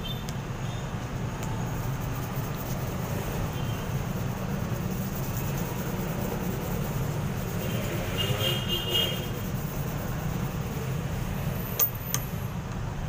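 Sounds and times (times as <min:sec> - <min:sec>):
rubbing on wet sandpaper: 0:01.6 - 0:11.2.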